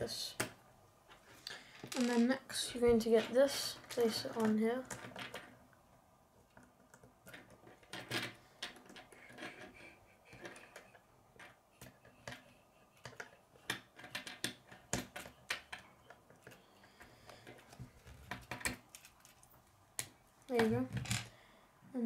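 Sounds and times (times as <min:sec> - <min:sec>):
plastic pieces clicking together: 0:06.5 - 0:21.3.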